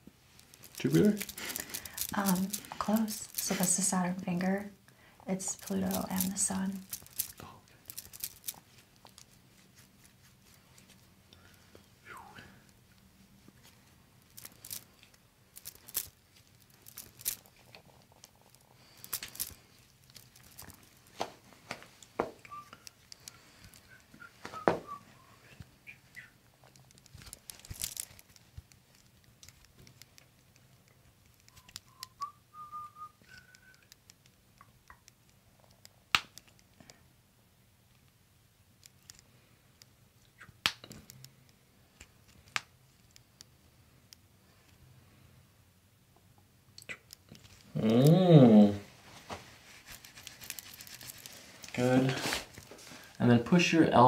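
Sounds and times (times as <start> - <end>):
skin and fabric rustling: 0.3 - 4.1, 5.4 - 11.2, 13.4 - 30.2, 48.9 - 53.3
faint whistle-like tone: 22.4 - 23.0, 23.8 - 26.3, 31.5 - 34.0.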